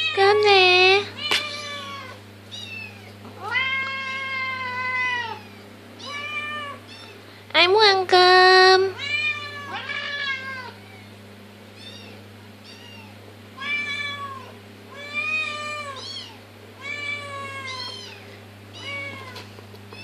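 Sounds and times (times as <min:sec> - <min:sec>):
cats meowing: 0:00.0 - 0:07.2, 0:08.8 - 0:11.2, 0:11.8 - 0:20.0.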